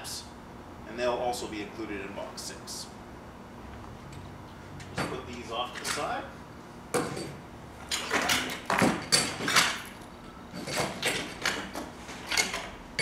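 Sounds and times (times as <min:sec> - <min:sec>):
metal parts clattering: 0:07.9 - 0:12.7.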